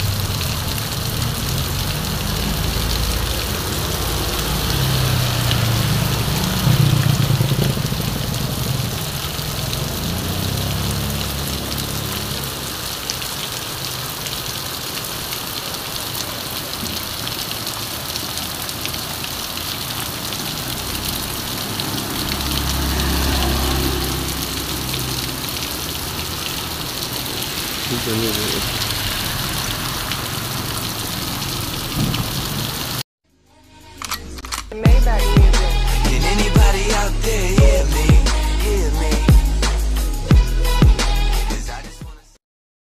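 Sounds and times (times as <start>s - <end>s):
heavy rain on pavement: 0.0s - 33.0s
motorbike engines passing: 0.0s - 33.0s.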